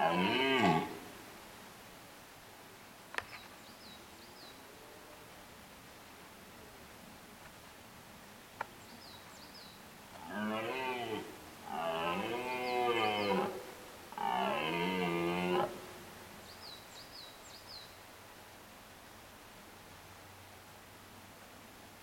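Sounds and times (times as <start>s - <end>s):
deer stag rutting calls: 0.0s - 1.1s, 10.2s - 15.8s.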